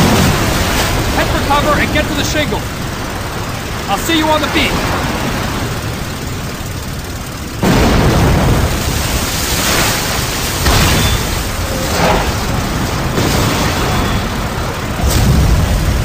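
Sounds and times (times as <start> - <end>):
loud blasts: 0.0 - 16.0
explosions: 7.6 - 16.0.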